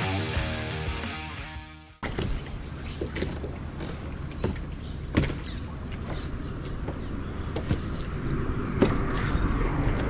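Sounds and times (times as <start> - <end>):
wind: 2.0 - 10.0.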